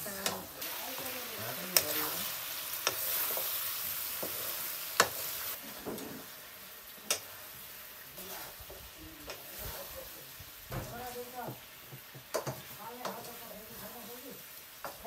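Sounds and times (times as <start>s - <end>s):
meat sizzling in a wok: 0.0s - 15.0s.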